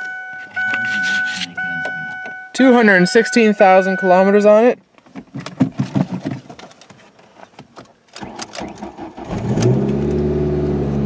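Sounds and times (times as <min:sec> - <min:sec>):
car engine idling: 0:00.0 - 0:04.7.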